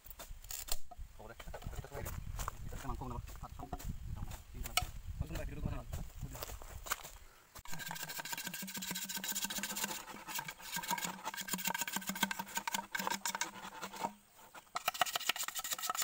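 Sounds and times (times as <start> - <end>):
knife scraping bamboo: 0.0 - 0.9, 7.6 - 16.0.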